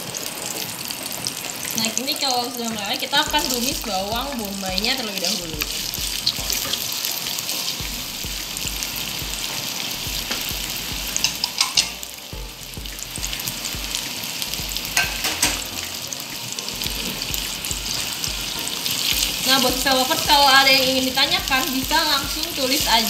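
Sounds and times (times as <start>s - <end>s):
onions sizzling in a pan: 0.0s - 23.0s.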